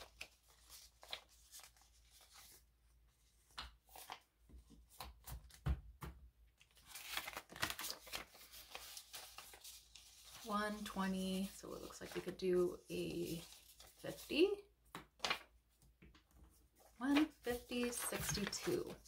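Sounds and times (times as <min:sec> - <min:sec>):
paper bills rustling: 0:00.0 - 0:02.6, 0:06.7 - 0:14.6, 0:15.2 - 0:15.6, 0:16.8 - 0:19.0.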